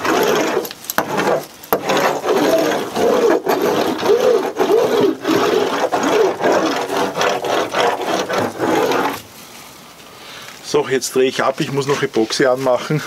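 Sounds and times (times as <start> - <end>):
laminating roller scraping and squeaking: 0.0 - 9.3.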